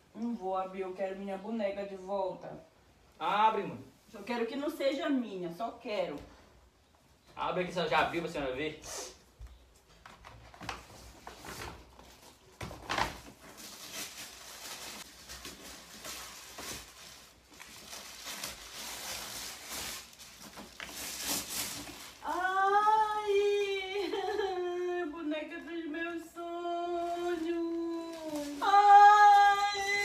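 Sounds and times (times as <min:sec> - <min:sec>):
paper bag and tissue rustling: 0:10.4 - 0:24.6, 0:26.6 - 0:30.0
woman wailing: 0:22.3 - 0:25.3, 0:27.9 - 0:30.0.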